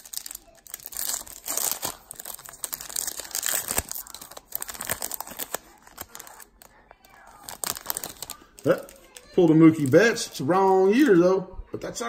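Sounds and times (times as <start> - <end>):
foil wrapper crinkling and tearing: 0.0 - 11.2.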